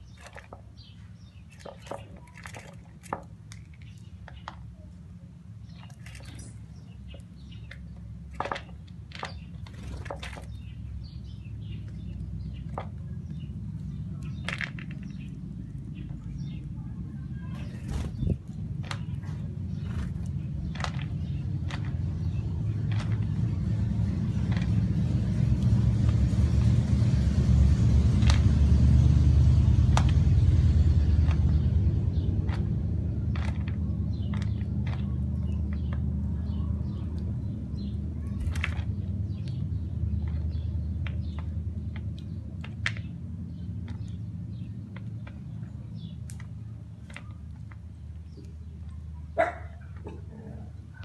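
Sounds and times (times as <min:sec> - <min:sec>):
low motor rumble: 0:00.0 - 0:51.0
bird pecking in plastic bowl: 0:00.1 - 0:04.7, 0:19.8 - 0:22.1
dog yip: 0:49.4 - 0:49.8.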